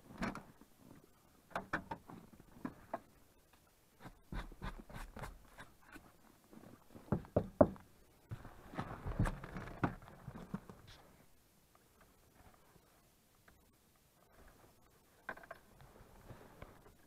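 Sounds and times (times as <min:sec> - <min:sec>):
rustling and shuffling in seat: 0:08.3 - 0:17.0.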